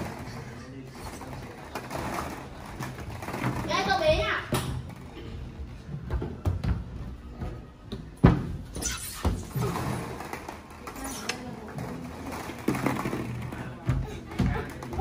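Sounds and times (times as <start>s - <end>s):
plastic balls shifting: 0.0s - 4.0s, 9.4s - 13.8s.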